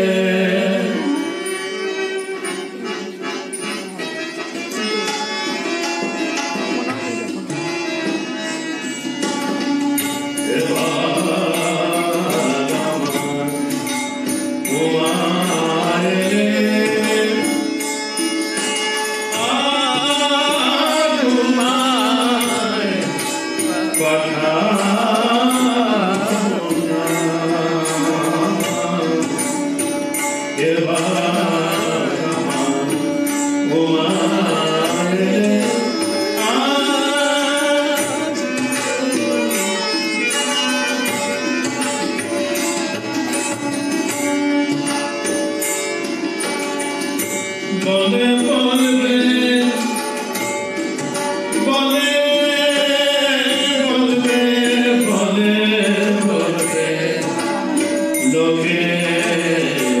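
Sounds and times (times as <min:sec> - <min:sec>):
man singing devotional song: 0:00.0 - 0:01.8, 0:10.3 - 0:18.3, 0:19.2 - 0:41.6, 0:47.6 - 1:00.0
instrumental accompaniment: 0:00.0 - 1:00.0.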